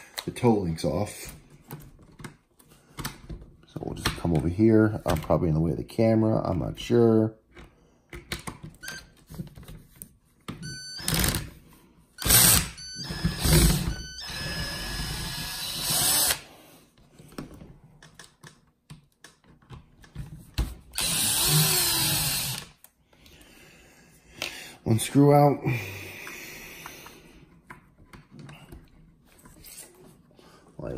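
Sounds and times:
cordless drill motor running: 0:12.2 - 0:16.5, 0:21.0 - 0:22.7.

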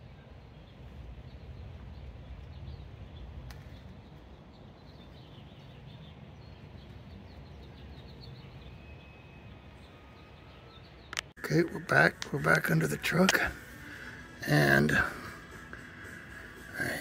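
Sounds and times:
faint low rumble: 0:00.0 - 0:08.8
small birds chirping: 0:00.0 - 0:17.0.

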